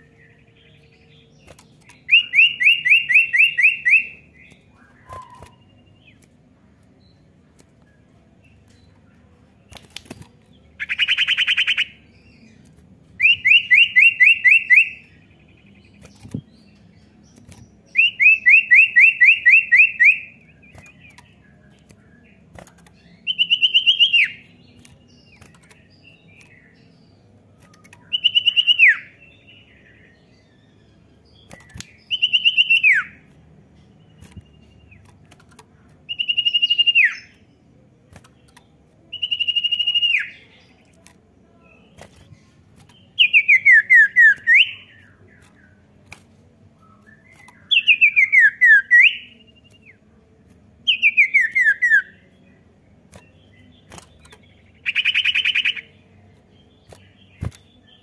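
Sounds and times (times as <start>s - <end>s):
songbird whistling: 1.9s - 5.9s, 13.2s - 15.3s, 17.9s - 21.2s, 23.2s - 24.5s, 27.8s - 29.2s, 31.4s - 33.3s, 36.1s - 37.4s, 39.1s - 40.5s, 43.1s - 45.2s, 46.8s - 49.8s, 50.9s - 52.3s, 54.8s - 55.9s.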